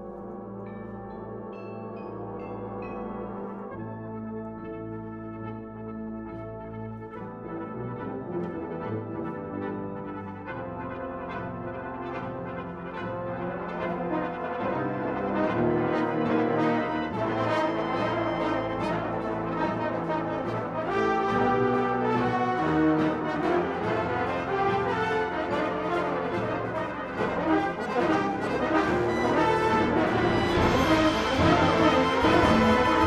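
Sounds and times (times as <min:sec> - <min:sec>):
brass band playing chords: 0:00.0 - 0:33.0
steady percussion beat: 0:29.7 - 0:33.0.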